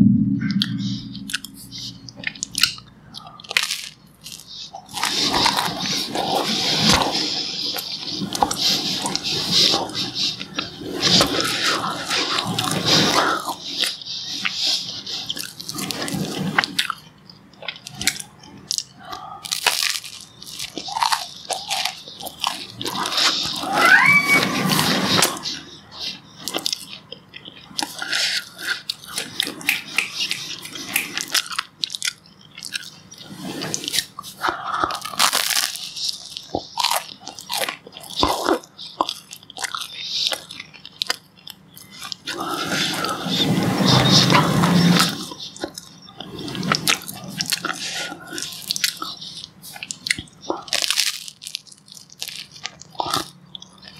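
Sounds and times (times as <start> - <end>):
wet mouth clicks: 0.5 - 23.7, 25.2 - 43.2
chewing: 1.2 - 53.9
toast crunching: 15.3 - 24.1, 25.2 - 43.2, 45.2 - 53.9.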